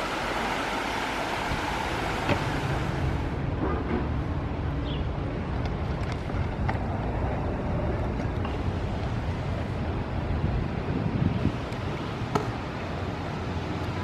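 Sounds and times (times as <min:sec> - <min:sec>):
creek water running over rocks: 0:00.0 - 0:03.4
scooter wheels rolling on concrete: 0:05.2 - 0:14.0.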